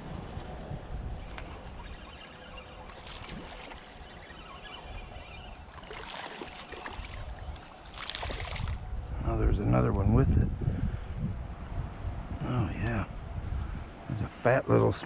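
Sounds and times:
wind rumble on microphone: 0:00.0 - 0:15.0
creek water running: 0:01.3 - 0:08.9.

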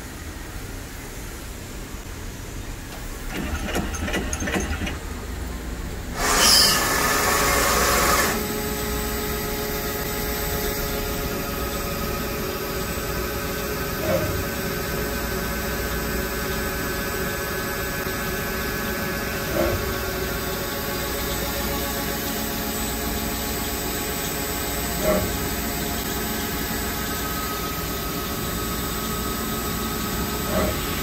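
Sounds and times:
machine clicks: 0:02.9 - 0:05.0.

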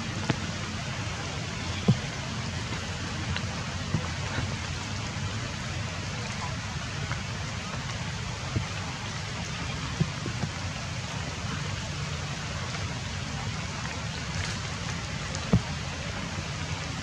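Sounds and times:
light rain on forest canopy: 0:00.0 - 0:17.0.

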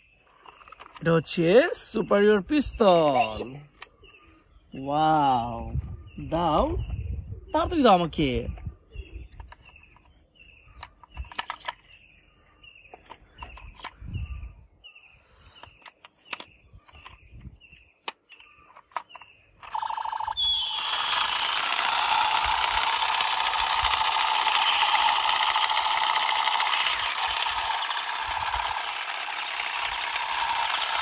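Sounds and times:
bird chirping: 0:00.0 - 0:21.4
toy pistol buzzing rattle: 0:10.8 - 0:11.9, 0:18.8 - 0:31.0.

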